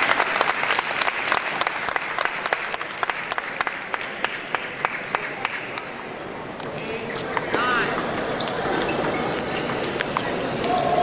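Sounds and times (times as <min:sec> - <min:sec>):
spectators applauding: 0:00.0 - 0:05.8.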